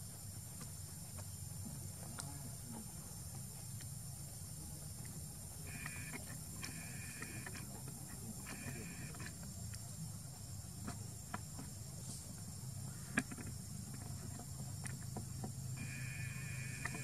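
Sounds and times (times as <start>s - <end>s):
insects droning: 0.0s - 17.0s
low buzzing tone: 5.6s - 9.4s, 15.7s - 17.0s.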